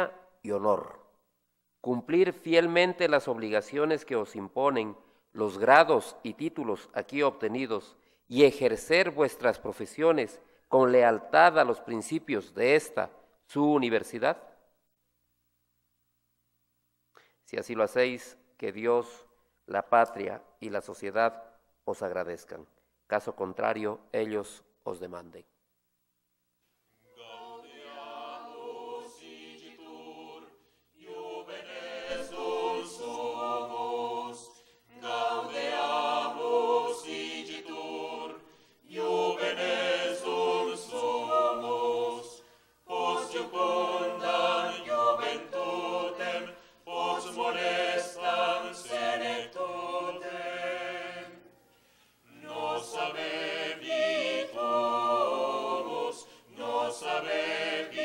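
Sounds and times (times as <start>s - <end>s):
mixed choir singing unaccompanied: 27.1s - 51.5s, 52.2s - 58.0s.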